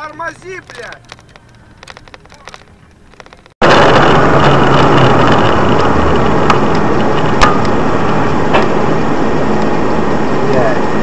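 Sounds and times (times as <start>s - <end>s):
moving road vehicle noise: 0.0s - 11.0s
sharp clicks: 0.4s - 3.6s.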